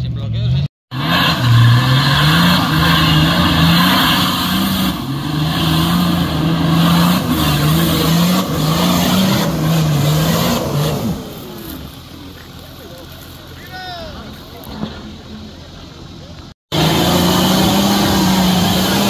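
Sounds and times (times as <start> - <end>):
engine revving hard: 0.9 - 11.8, 16.7 - 19.0.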